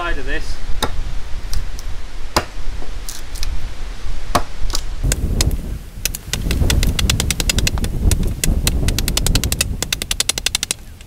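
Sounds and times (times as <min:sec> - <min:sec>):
axe chopping wood: 0:00.8 - 0:01.0, 0:02.3 - 0:02.6, 0:04.3 - 0:05.3.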